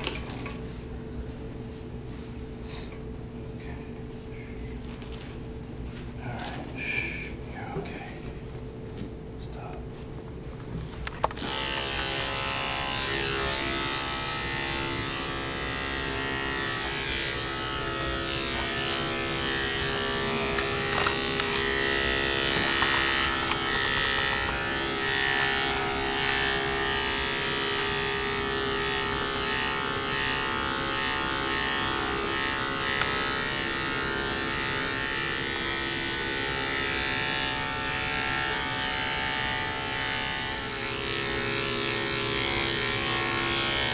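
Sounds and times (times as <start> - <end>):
electric clippers running: 0.0 - 0.6, 11.1 - 43.9.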